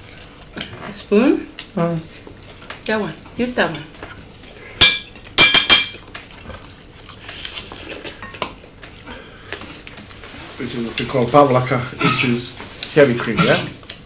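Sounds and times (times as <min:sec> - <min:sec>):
soft eating sounds: 0:00.0 - 0:14.0
metal fork clinking on a plate: 0:04.8 - 0:06.0.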